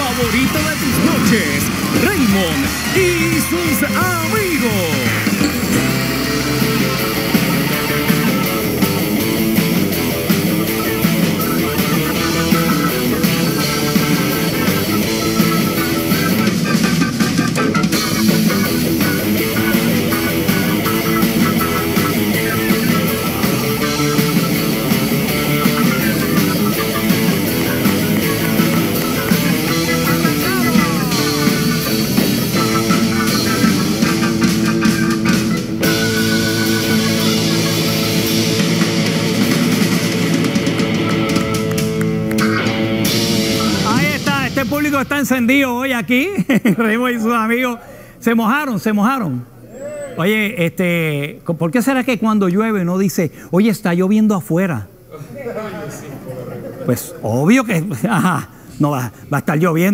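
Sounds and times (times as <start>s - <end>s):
electric guitar: 0.0s - 45.5s
rock band playing: 0.0s - 46.5s.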